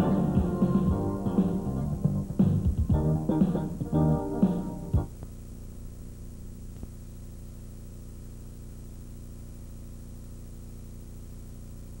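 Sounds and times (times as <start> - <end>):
low hum: 0.0 - 9.1
tape hiss: 0.0 - 12.0.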